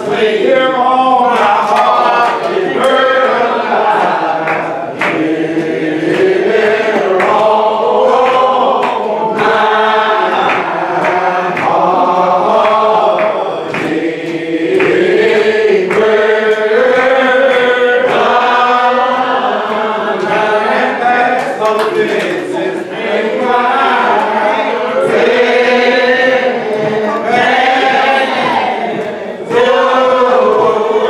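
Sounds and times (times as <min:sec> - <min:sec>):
congregation singing a hymn: 0:00.0 - 0:31.0.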